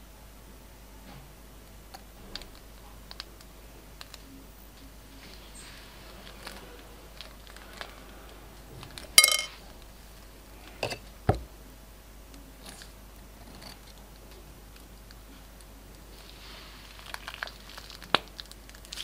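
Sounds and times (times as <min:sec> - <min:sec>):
plastic crinkles and clicks: 0:02.3 - 0:04.3, 0:16.9 - 0:19.0
sharp knocks against plate: 0:09.2 - 0:09.6
slime squeezed in piping bag: 0:16.1 - 0:19.0.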